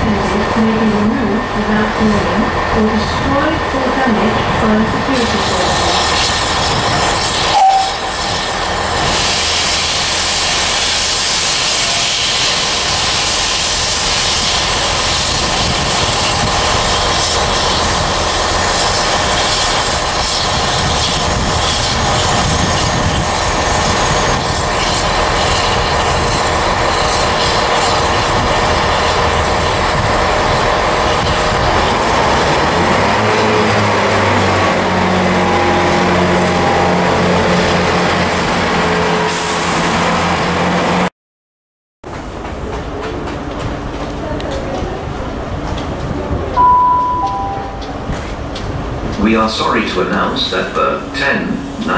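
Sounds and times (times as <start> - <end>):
locomotive low rumble: 0.0 - 41.1, 42.2 - 51.9
steam hissing: 4.7 - 37.4.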